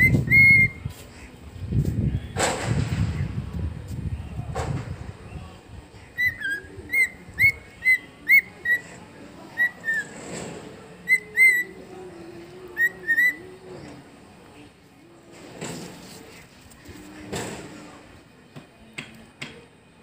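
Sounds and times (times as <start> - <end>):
cockatiel whistling: 0.0 - 0.8, 6.2 - 8.8, 11.1 - 11.8, 12.8 - 13.4.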